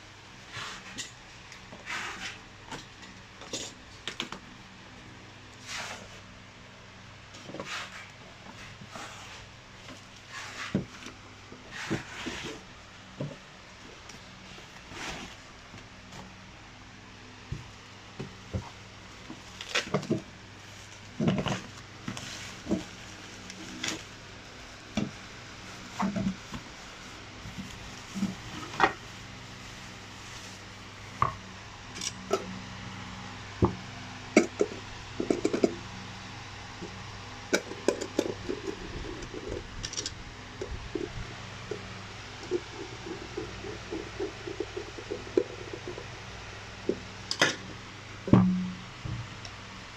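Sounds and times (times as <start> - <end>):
low hum: 48.1 - 49.9.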